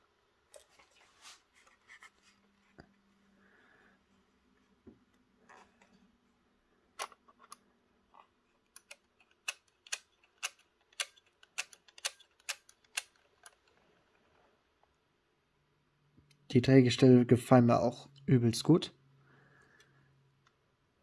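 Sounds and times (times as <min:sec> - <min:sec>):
plastic clicks of model coach: 0:08.7 - 0:13.8.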